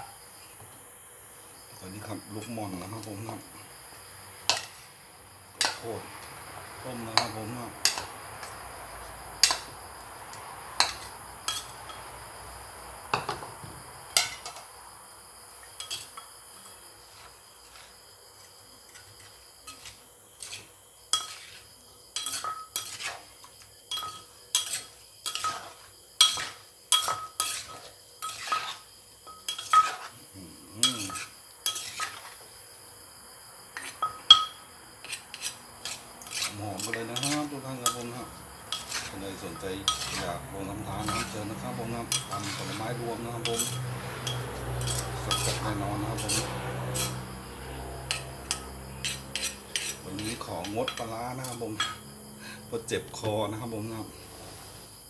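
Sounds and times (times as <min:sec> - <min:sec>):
spoon clinking against bowl: 0:34.0 - 0:34.6, 0:36.3 - 0:40.3, 0:42.1 - 0:42.8, 0:43.4 - 0:47.2.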